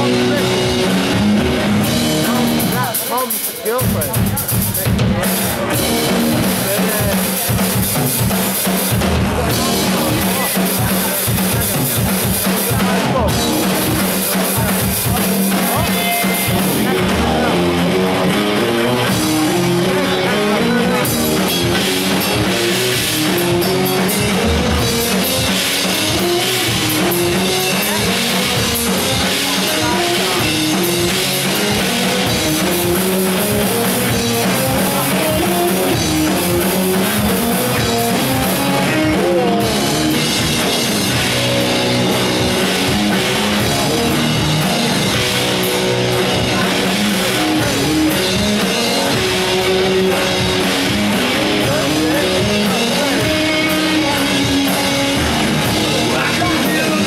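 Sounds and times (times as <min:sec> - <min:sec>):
rock band playing live: 0:00.0 - 0:57.0.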